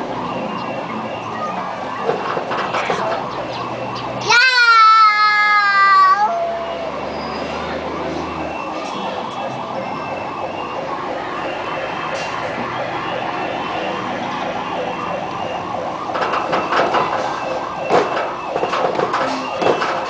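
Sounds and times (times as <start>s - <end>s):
siren warbling: 0.0s - 18.8s
knocks and clatter: 2.0s - 3.4s, 16.1s - 20.0s.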